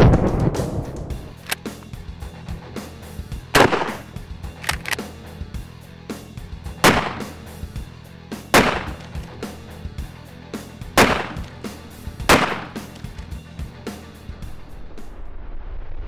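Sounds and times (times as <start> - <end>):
shotgun shots: 3.6 - 5.0, 6.8 - 7.5, 8.5 - 9.4, 11.0 - 11.7, 12.3 - 13.0.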